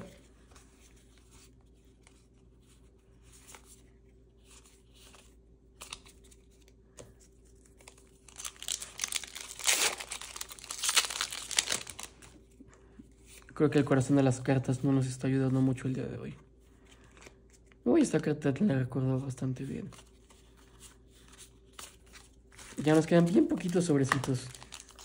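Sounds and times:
wrapper crinkling and tearing: 7.5s - 12.5s, 21.5s - 25.0s.

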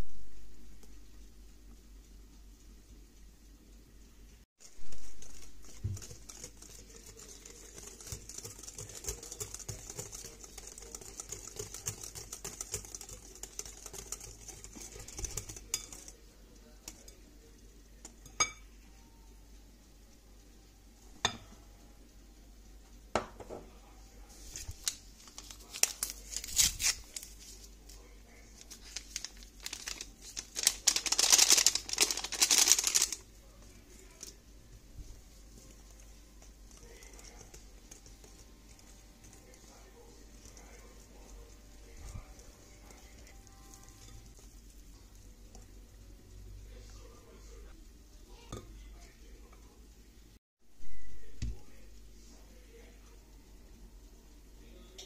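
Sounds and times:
flour rustling into bowl: 4.6s - 16.2s, 24.3s - 45.2s
wire whisk beating batter: 4.6s - 18.6s, 24.5s - 49.8s
whisk clicking against glass bowl: 5.0s - 16.2s.

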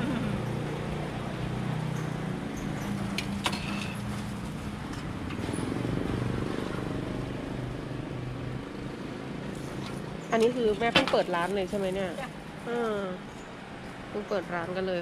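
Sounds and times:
low motor hum: 0.0s - 8.9s.

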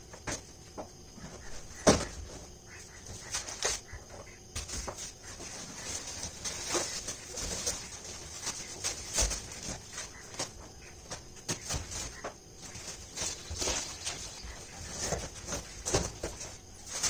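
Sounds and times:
cardboard boxes knocking and scraping: 0.0s - 17.0s
plastic wrapping rustling: 4.6s - 17.0s.

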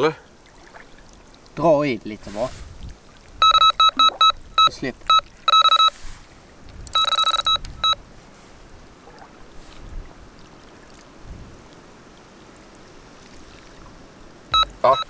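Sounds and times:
bite alarm beeping: 3.4s - 5.9s, 6.9s - 8.0s, 14.6s - 15.0s
bite alarm continuous tone: 3.4s - 5.9s, 14.6s - 15.0s.

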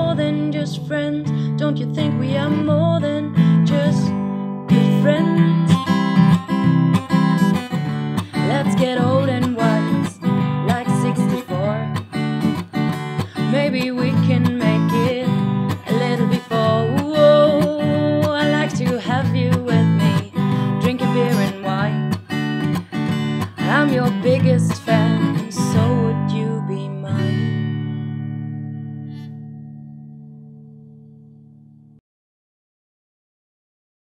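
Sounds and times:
woman singing: 0.0s - 22.4s, 23.4s - 27.6s
acoustic guitar strumming: 0.0s - 31.8s.

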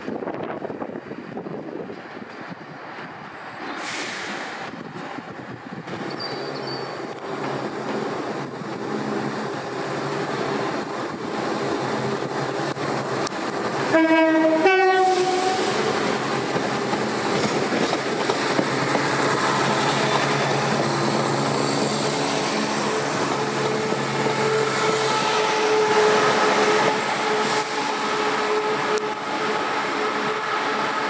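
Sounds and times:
diesel train engine drone: 0.0s - 31.0s
train horn blast: 13.9s - 15.9s, 23.8s - 30.9s.

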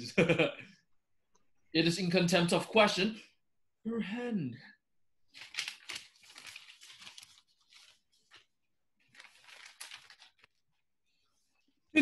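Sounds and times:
paper crinkling and tearing: 5.3s - 10.8s.

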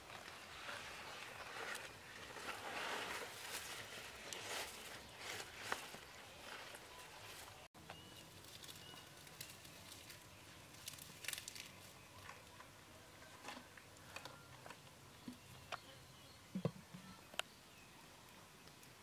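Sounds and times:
faint clicks and crackles: 1.2s - 12.7s.

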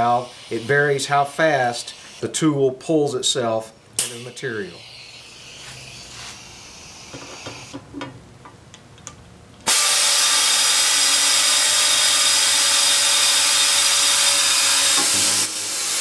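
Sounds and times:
air drill hissing and whining: 0.0s - 2.6s, 4.0s - 7.8s, 9.7s - 16.0s.

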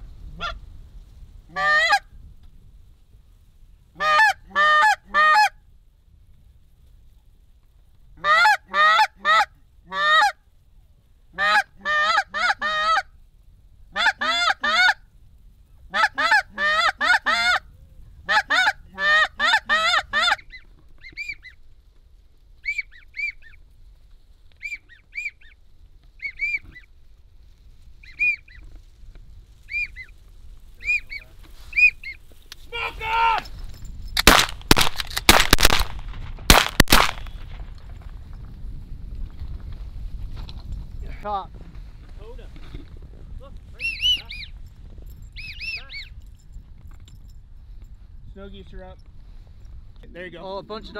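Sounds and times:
goose honking: 1.5s - 2.0s, 4.0s - 5.5s, 8.2s - 10.4s, 11.4s - 13.1s, 14.0s - 15.0s, 15.9s - 17.6s, 18.3s - 21.5s.

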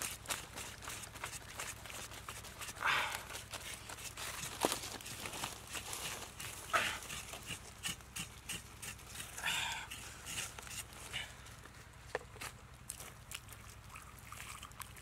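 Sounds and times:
knife scraping pig hide: 0.0s - 11.3s.

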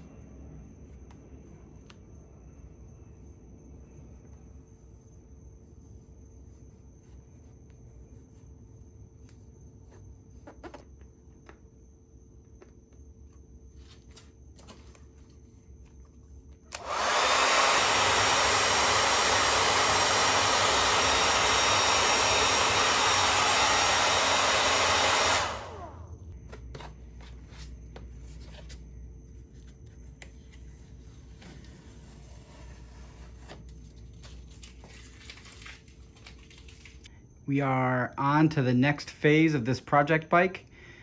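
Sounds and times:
heat gun blowing: 16.7s - 26.1s.

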